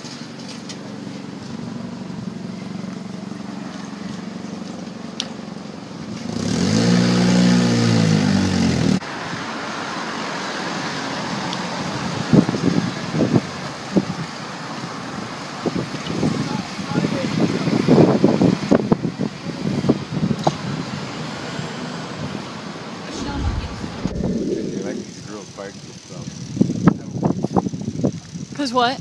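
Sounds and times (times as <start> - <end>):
street traffic: 0.0 - 25.4
vehicle engine revving: 6.2 - 9.0, 23.1 - 25.5.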